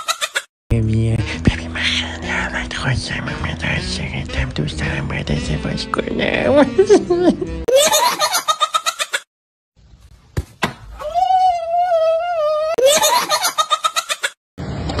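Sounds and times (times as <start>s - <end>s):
sharp thuds: 10.3s - 11.0s
baby giggling: 12.7s - 14.4s.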